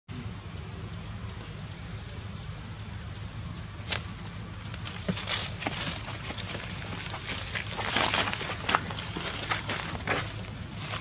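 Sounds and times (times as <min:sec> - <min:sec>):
low background noise: 0:00.1 - 0:11.0
scuffing rustling footsteps: 0:03.9 - 0:11.0.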